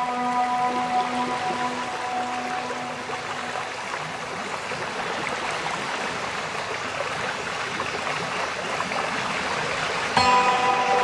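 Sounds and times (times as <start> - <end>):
ambient music with crackling noise: 0.0 - 11.0.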